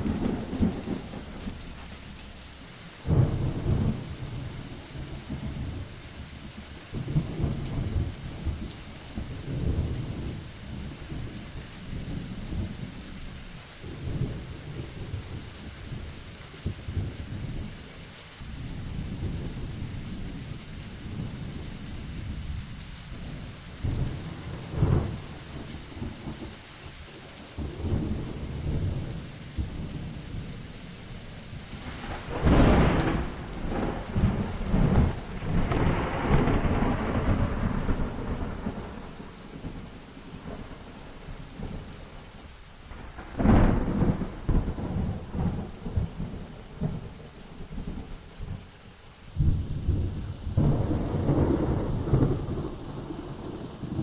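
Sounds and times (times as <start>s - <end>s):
sharp thunderclaps: 0.0s - 2.0s, 23.2s - 26.5s, 31.7s - 39.8s, 42.9s - 47.1s, 49.4s - 54.0s
low rolling thunder: 0.0s - 17.8s, 18.4s - 42.2s, 42.8s - 48.6s, 49.3s - 54.0s
steady rain: 0.0s - 54.0s.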